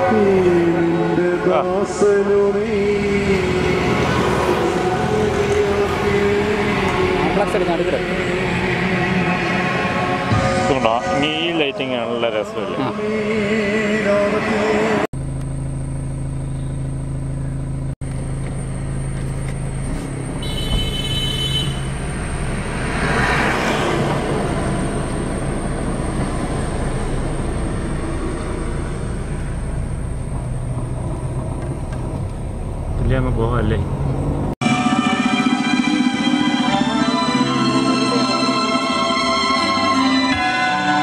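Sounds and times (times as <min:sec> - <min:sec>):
chanted singing: 0:00.0 - 0:15.1
car engine hum: 0:00.0 - 0:40.1
road rumble: 0:00.0 - 0:41.0
high-pitched tone: 0:34.6 - 0:41.0.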